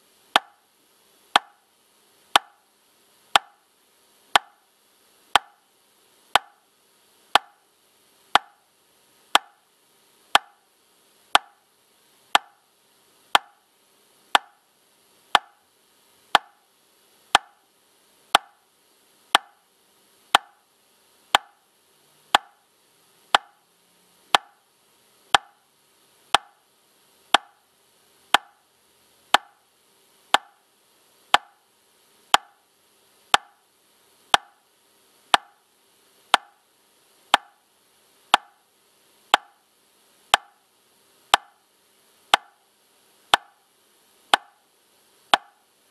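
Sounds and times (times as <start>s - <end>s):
metronome ticking: 0.4s - 0.6s, 1.4s - 1.6s, 2.3s - 2.6s, 3.3s - 3.6s, 4.4s - 4.6s, 5.4s - 5.6s, 6.4s - 6.6s, 7.4s - 7.6s, 8.4s - 8.6s, 9.3s - 9.6s, 10.4s - 10.6s, 11.4s - 11.6s, 12.3s - 12.6s, 13.4s - 13.6s, 14.4s - 14.6s, 15.4s - 15.6s, 16.4s - 16.6s, 17.3s - 17.6s, 18.3s - 18.6s, 19.3s - 19.6s, 20.3s - 20.6s, 21.3s - 21.6s, 22.3s - 22.6s, 23.3s - 23.6s, 24.3s - 24.6s, 25.3s - 25.6s, 26.3s - 26.6s, 27.3s - 27.6s, 28.3s - 28.6s, 29.3s - 29.6s, 30.3s - 30.6s, 31.3s - 31.6s, 32.4s - 32.6s, 33.3s - 33.6s, 34.3s - 34.6s, 35.3s - 35.6s, 36.3s - 36.6s, 37.3s - 37.6s, 38.3s - 38.6s, 39.3s - 39.6s, 40.3s - 40.6s, 41.3s - 41.6s, 42.3s - 42.6s, 43.3s - 43.6s, 44.3s - 44.6s, 45.3s - 45.6s.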